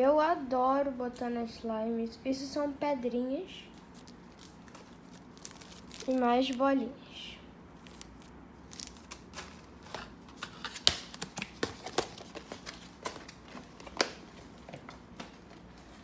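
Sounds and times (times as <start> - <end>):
plastic bags and containers handled: 3.7 - 6.8, 7.7 - 16.0.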